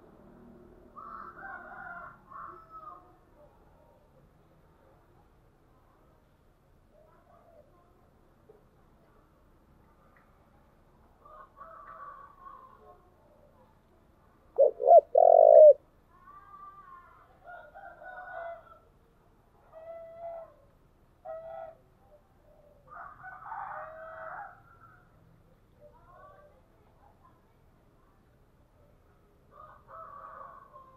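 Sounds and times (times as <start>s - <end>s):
dove cooing: 14.6s - 15.8s.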